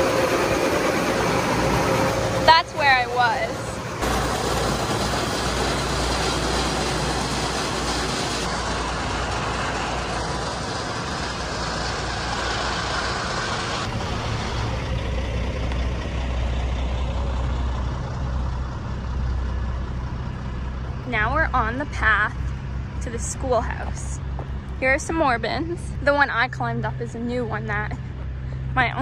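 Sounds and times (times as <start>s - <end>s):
broad rushing noise: 0.0s - 14.7s
heavy engine running: 0.0s - 29.0s.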